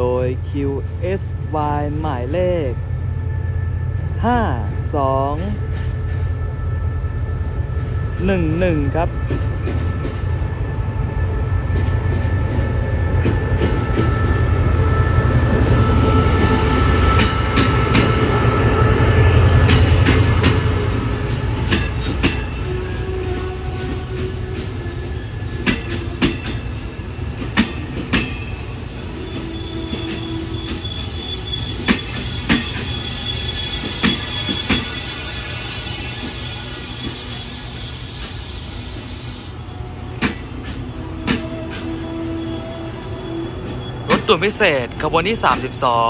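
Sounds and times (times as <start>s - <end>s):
locomotive engine rumbling: 0.0s - 46.0s
train brake squeal: 21.5s - 46.0s
wheels clacking over rail joints: 40.0s - 42.0s.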